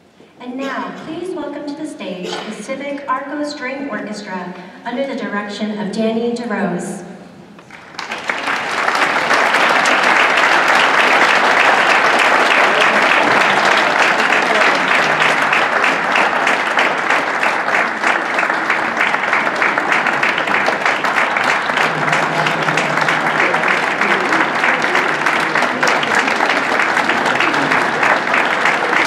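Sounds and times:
audience applauding: 7.6s - 29.0s.

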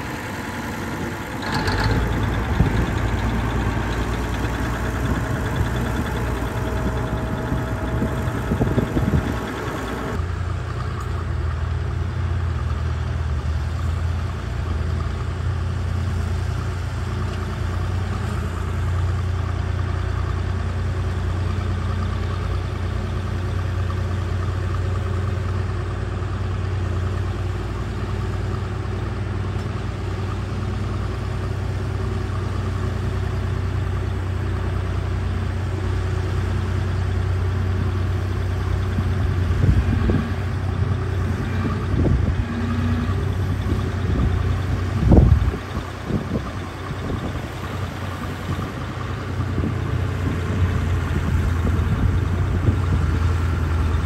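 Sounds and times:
bulldozer diesel engines running: 0.0s - 54.0s
metal clanks: 1.2s - 10.2s.

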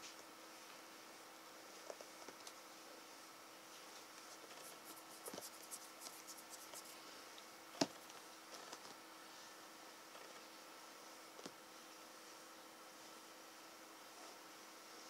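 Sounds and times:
faint steady hum: 0.0s - 15.0s
hand stroking cat fur: 4.2s - 7.1s.

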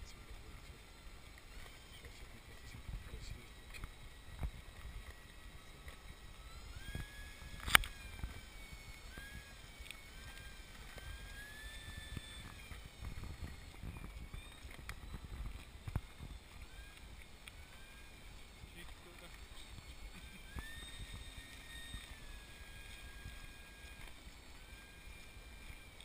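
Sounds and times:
model plane motor whining: 0.0s - 26.0s
sharp click: 7.6s - 8.0s.

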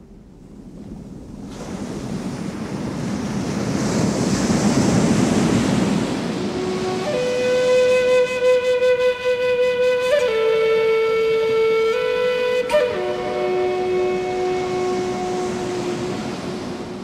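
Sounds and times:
ocean surf rushing: 0.0s - 17.0s
flute-like notes: 6.5s - 17.0s.

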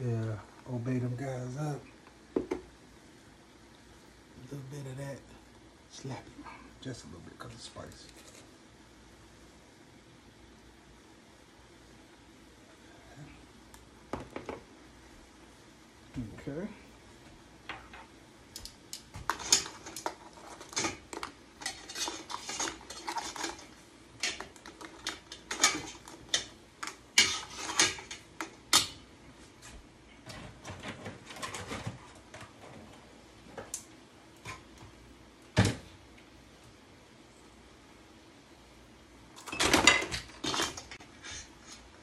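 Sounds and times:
metal utensil scraping a pot: 21.6s - 24.4s, 25.0s - 28.2s.

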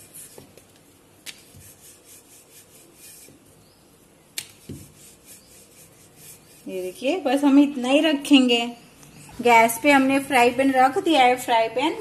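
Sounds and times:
rolling pin rubbing dough: 0.0s - 7.5s.

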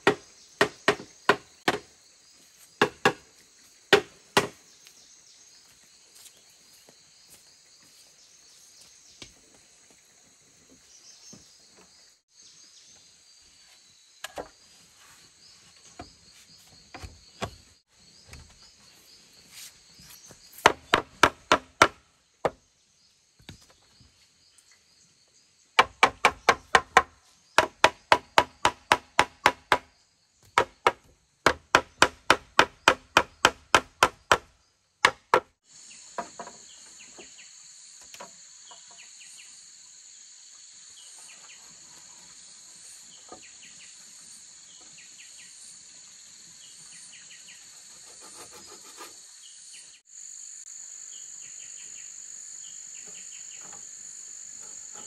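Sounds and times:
bamboo being chopped: 0.0s - 1.9s, 2.8s - 3.3s, 3.9s - 4.6s, 20.6s - 22.6s, 25.8s - 35.6s
insects buzzing: 0.0s - 34.4s, 35.1s - 55.0s.

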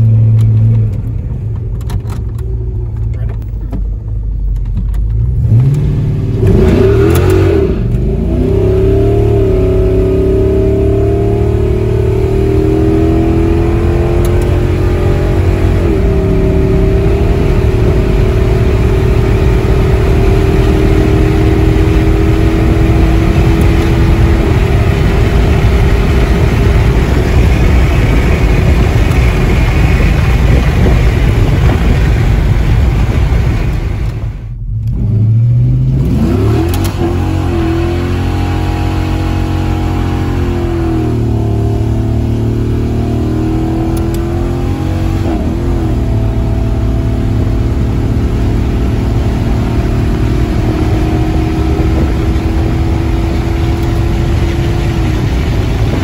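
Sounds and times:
car engine running under load: 0.0s - 56.0s
engine revving: 5.1s - 56.0s.

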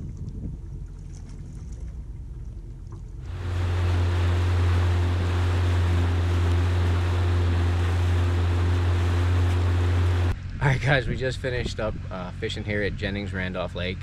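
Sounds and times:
wind and water hiss: 0.0s - 13.7s
boat motor humming: 1.7s - 10.4s.

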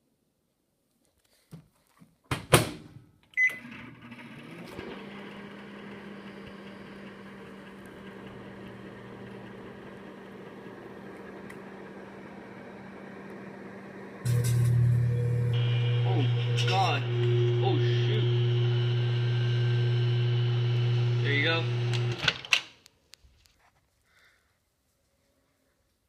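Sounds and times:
microwave oven humming: 3.4s - 22.2s.

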